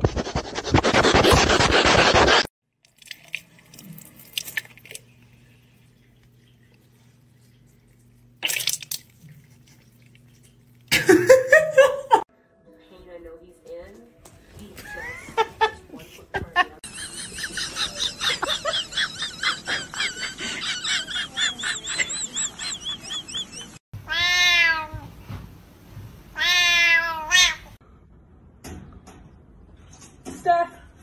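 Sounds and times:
cat meowing: 24.0 - 25.1, 26.4 - 27.7.

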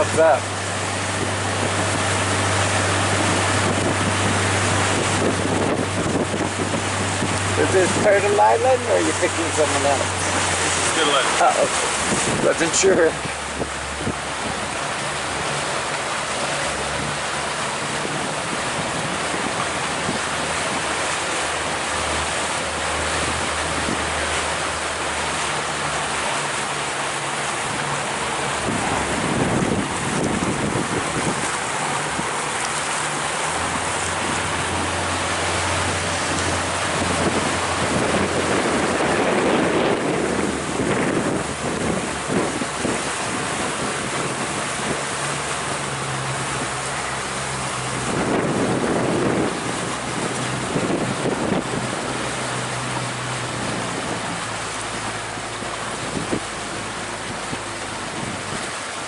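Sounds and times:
low boat motor hum: 0.0 - 59.0
water along boat hull: 0.0 - 59.0
wind on microphone: 0.0 - 59.0.

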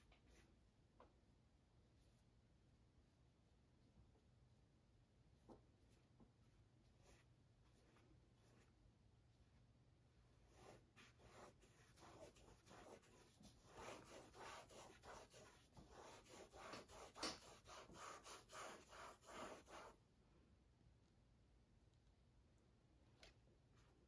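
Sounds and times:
paintbrush scrubbing on canvas: 1.8 - 20.0.

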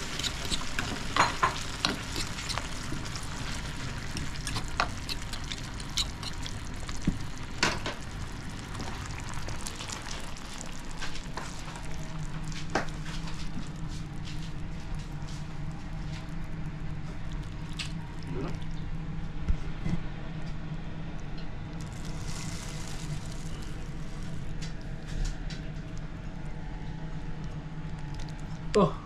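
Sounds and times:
sauce sizzling in a pan: 0.0 - 14.1, 21.8 - 24.4
low steady hum: 0.0 - 29.0.

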